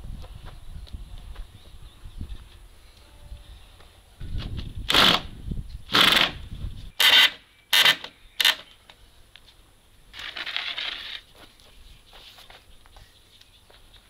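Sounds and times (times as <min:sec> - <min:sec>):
cordless drill driving screws: 0:05.9 - 0:06.4, 0:07.0 - 0:08.6
wooden pole scraping rustle: 0:10.1 - 0:13.2.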